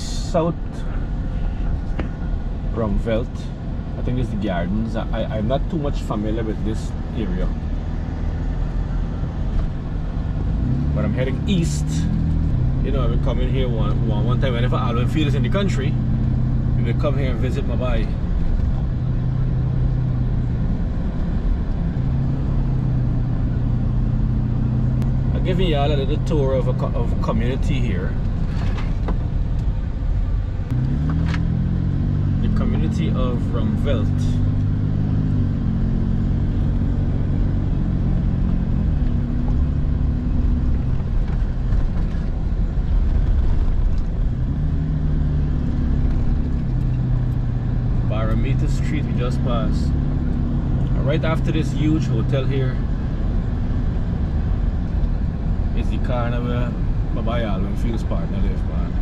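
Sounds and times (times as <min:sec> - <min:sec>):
car engine hum: 0:00.0 - 0:59.0
road noise: 0:00.0 - 0:59.0.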